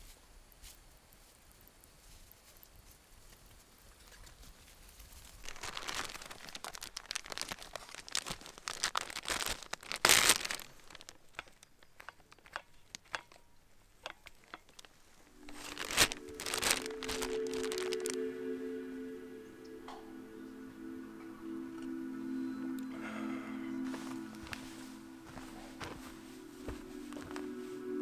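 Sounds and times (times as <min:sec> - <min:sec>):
plastic bag crinkling: 0:05.2 - 0:18.3, 0:23.9 - 0:27.6
music with held notes: 0:15.3 - 0:28.0.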